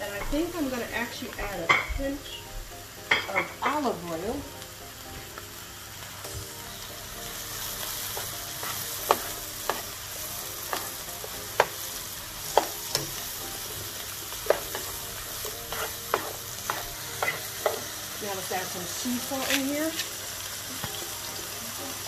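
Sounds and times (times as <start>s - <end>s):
mushrooms sizzling in a frying pan: 0.0s - 22.0s
spoon knocking against pan: 15.7s - 17.9s.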